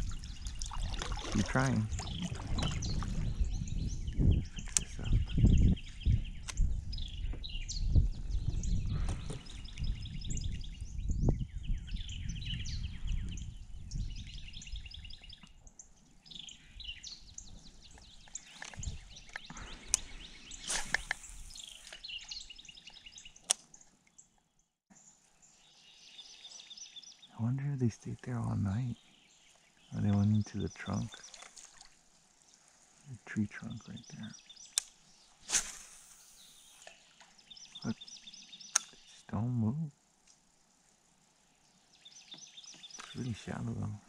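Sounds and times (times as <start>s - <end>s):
wind rumbling on microphone: 0.0s - 23.2s
songbirds chirping: 0.0s - 44.0s.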